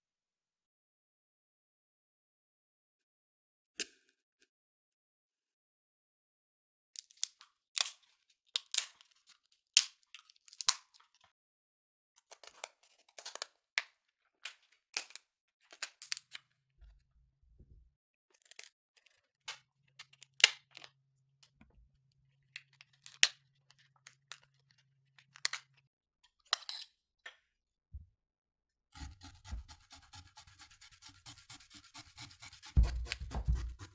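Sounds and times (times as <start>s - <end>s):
shears snipping shellfish shell: 29.0s - 33.9s.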